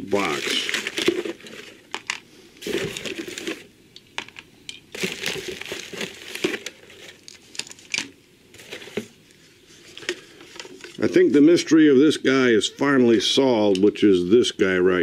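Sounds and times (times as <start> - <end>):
packaging rustling and crinkling: 0.0 - 3.7, 4.9 - 11.3.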